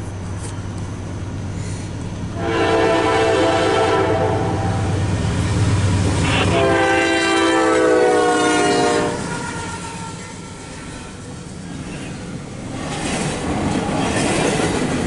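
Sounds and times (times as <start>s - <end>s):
diesel engine rumble: 0.0s - 7.0s
train air horn blasts: 2.3s - 5.0s, 6.2s - 11.3s.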